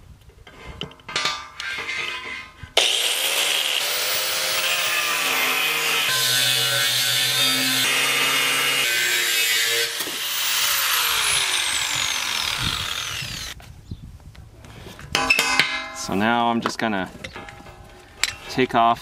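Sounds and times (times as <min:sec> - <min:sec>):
angle grinder cutting steel: 0:01.6 - 0:13.6.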